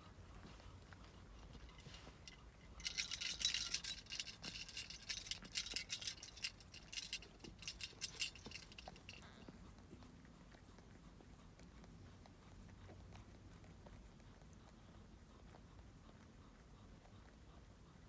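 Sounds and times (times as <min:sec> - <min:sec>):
crinkling rustle: 0:00.4 - 0:09.2.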